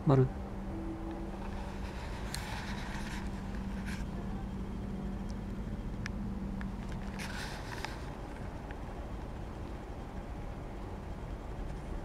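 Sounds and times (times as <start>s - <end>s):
steady low hum: 0.0s - 12.0s
soft rustles: 1.4s - 4.2s.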